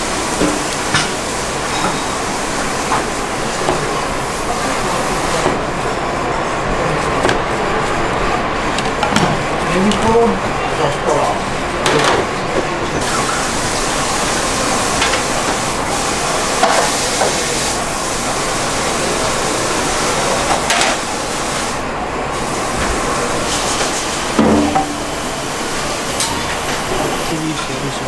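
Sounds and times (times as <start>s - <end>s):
kitchen background hiss: 0.0s - 6.0s, 9.1s - 28.0s
utensils and dishes clattering: 0.4s - 4.1s, 23.5s - 25.4s.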